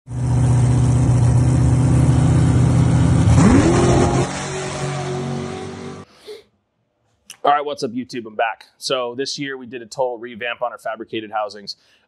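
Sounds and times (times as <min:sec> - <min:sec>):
race car engine revving: 0:00.1 - 0:06.0.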